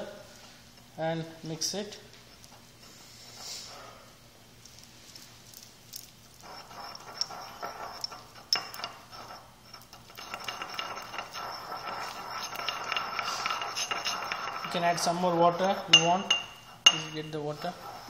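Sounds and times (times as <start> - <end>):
pestle grinding in mortar: 6.2 - 18.0
pestle clinking against bowl: 10.1 - 17.9.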